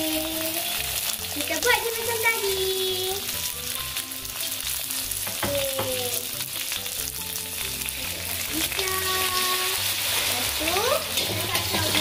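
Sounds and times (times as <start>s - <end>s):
egg sizzling in hot oil: 0.0s - 12.0s.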